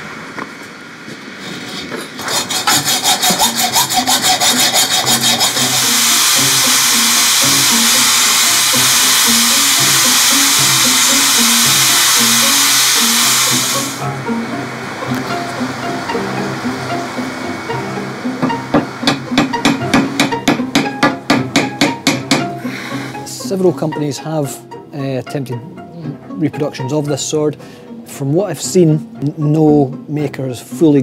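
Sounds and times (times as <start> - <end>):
hacksaw cutting steel: 1.5 - 14.2, 15.0 - 24.0
angle grinder grinding metal: 1.6 - 24.4.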